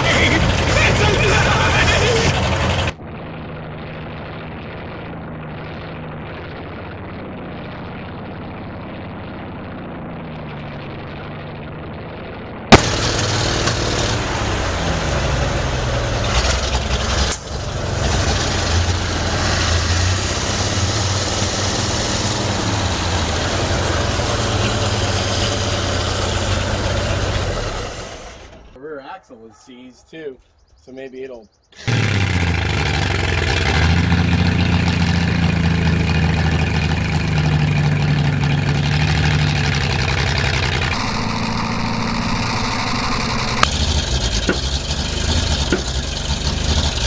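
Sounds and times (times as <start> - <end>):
truck engine idling: 0.0 - 3.5, 12.7 - 28.8, 31.7 - 47.0.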